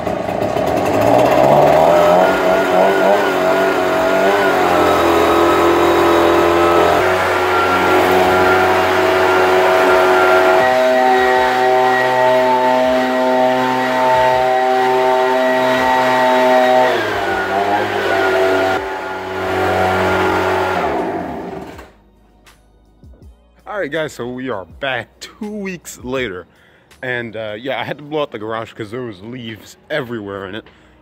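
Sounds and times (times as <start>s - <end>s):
leaf blower engine running: 0.0s - 22.0s.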